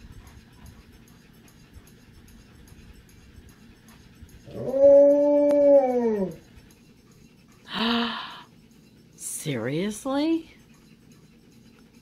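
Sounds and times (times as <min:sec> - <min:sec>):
dog howling: 0:04.4 - 0:06.5.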